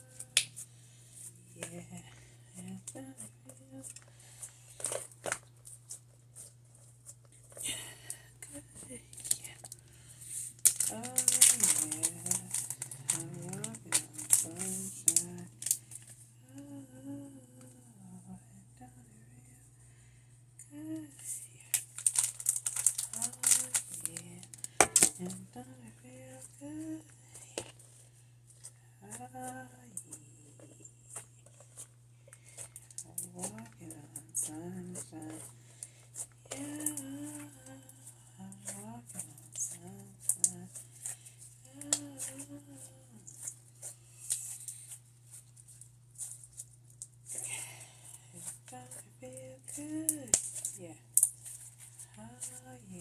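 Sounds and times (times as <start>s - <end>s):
person humming: 0.0s - 0.4s, 1.4s - 4.1s, 10.8s - 15.8s, 16.4s - 19.6s, 20.6s - 21.6s, 22.9s - 27.7s, 28.9s - 31.4s, 33.0s - 35.5s, 36.2s - 40.9s, 41.6s - 43.4s, 47.4s - 51.0s, 52.1s - 53.0s
steady low hum: 0.0s - 53.0s.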